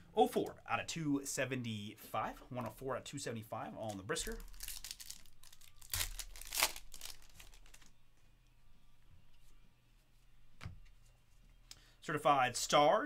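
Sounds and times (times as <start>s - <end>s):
card pack wrapper crinkling and tearing: 3.8s - 7.9s.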